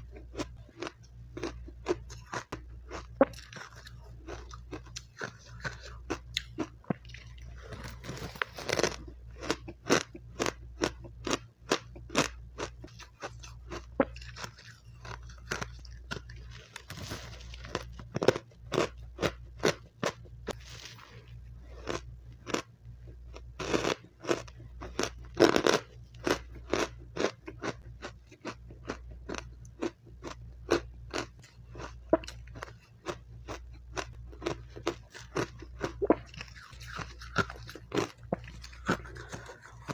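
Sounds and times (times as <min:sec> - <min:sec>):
crunching and chewing ice: 0:00.0 - 0:39.9.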